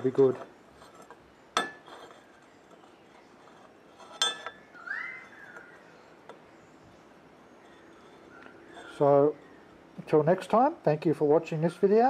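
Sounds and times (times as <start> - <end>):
metal clinking: 0.8 - 4.7.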